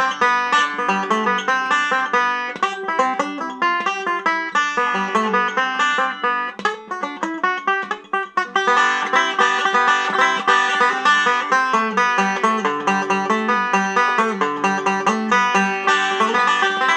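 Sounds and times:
banjo picking: 0.0s - 16.9s.

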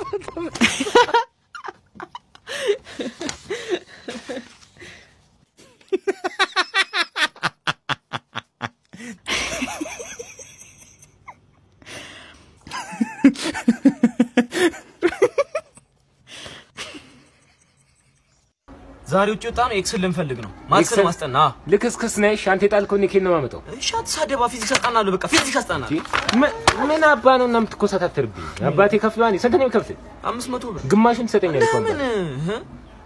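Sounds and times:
person laughing: 12.7s - 15.8s.

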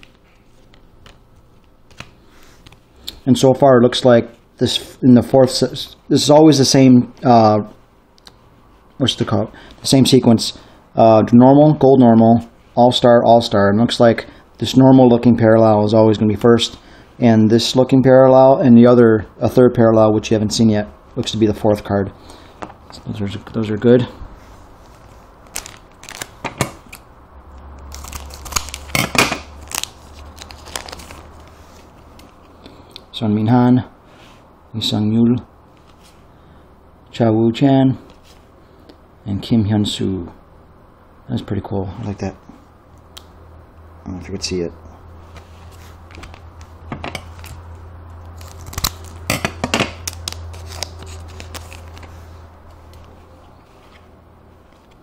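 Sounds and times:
foil wrapper crinkling: 25.4s - 27.0s, 27.8s - 32.4s, 48.2s - 52.3s.

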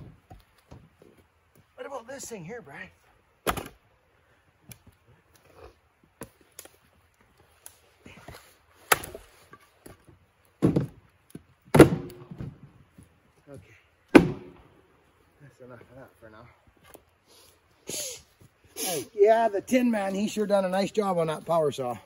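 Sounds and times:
axe chopping wood: 3.4s - 3.8s, 8.8s - 9.3s, 11.7s - 12.6s, 14.1s - 14.6s
wood pieces falling: 8.8s - 12.7s.

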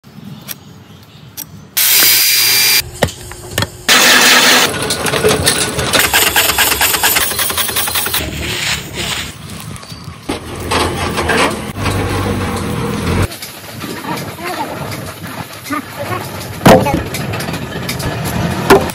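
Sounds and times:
steady machine noise: 1.8s - 18.9s
factory machinery clicking: 3.3s - 8.3s
rapid mechanical clacking: 3.9s - 8.3s.

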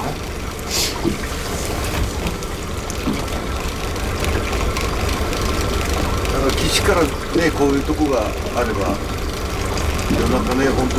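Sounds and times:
water sloshing and trickling: 0.0s - 10.9s.

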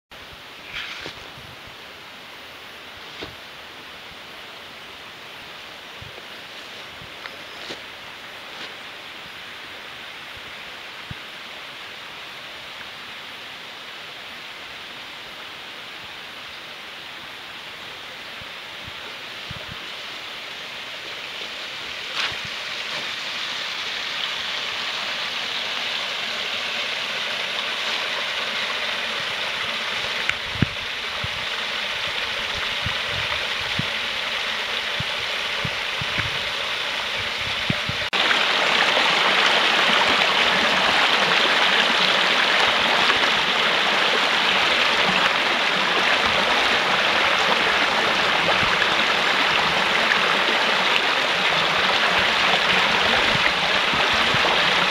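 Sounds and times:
brook rushing over stones: 0.6s - 1.5s, 21.0s - 54.9s.

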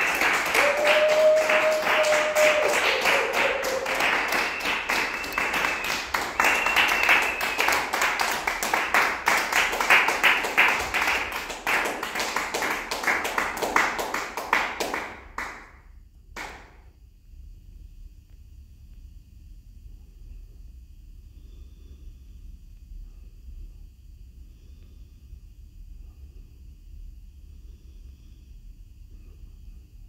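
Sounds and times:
held whistles: 0.0s - 9.0s
hands clapping in applause: 0.0s - 15.7s, 16.4s - 16.8s.

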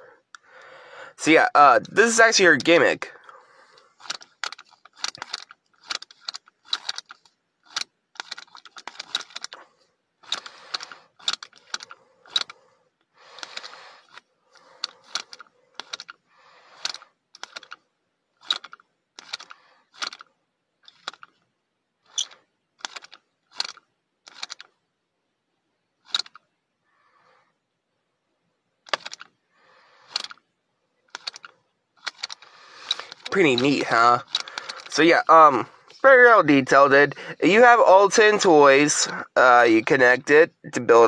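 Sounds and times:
sharp plastic clicks: 2.6s - 16.2s, 16.8s - 17.8s, 18.4s - 21.4s, 22.1s - 24.8s, 26.0s - 26.5s, 28.8s - 29.4s, 30.0s - 30.5s, 31.1s - 36.2s
short plastic rattle: 3.7s - 24.8s, 26.0s - 26.5s, 28.8s - 29.4s, 30.0s - 30.5s, 31.1s - 36.3s.

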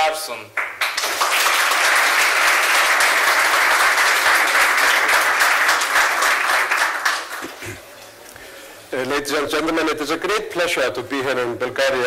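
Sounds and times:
audience applauding: 0.6s - 7.8s.

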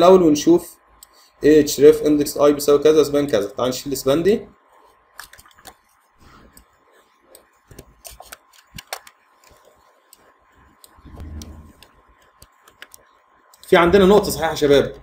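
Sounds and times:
keyboard typing: 7.3s - 13.7s
mouse clicks: 10.1s - 13.7s.

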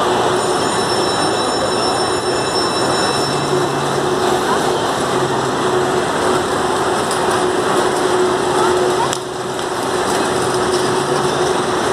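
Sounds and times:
constant hum: 0.0s - 11.9s
voices: 0.0s - 11.9s.

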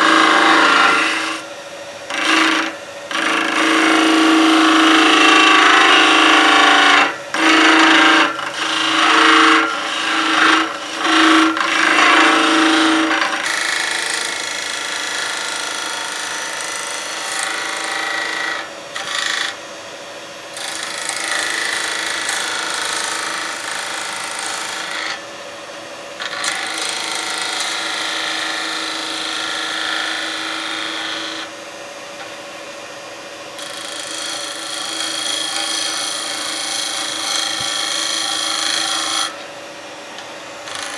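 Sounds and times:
gouge hissing cutting wood: 0.0s - 1.4s, 2.1s - 13.8s
lathe humming: 0.0s - 40.9s.

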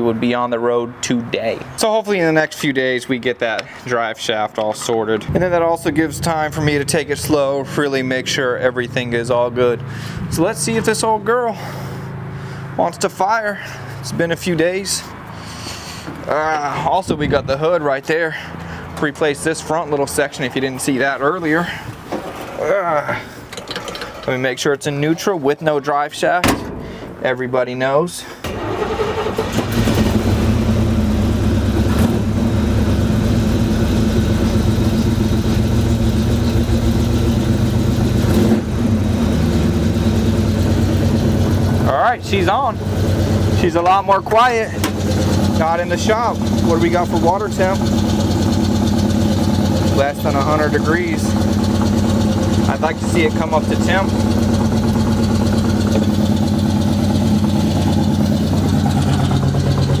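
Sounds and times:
pickup engine idling: 17.5s - 22.3s, 28.5s - 60.0s.

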